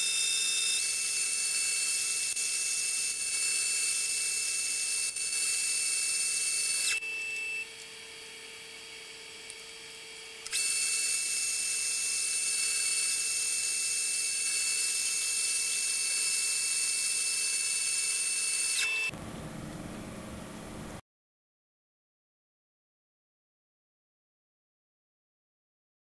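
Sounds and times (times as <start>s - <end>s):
metal lathe high-pitched whine: 0.0s - 19.1s.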